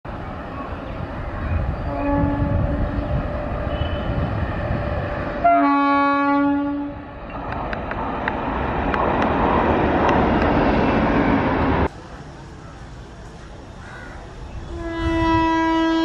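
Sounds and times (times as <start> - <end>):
train horn blast: 1.7 - 4.3, 5.4 - 7.0, 14.6 - 16.0.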